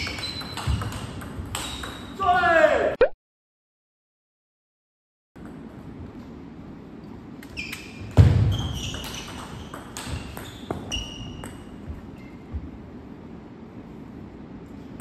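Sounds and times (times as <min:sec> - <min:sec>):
table tennis balls clicking: 0:00.0 - 0:02.1, 0:08.6 - 0:11.7.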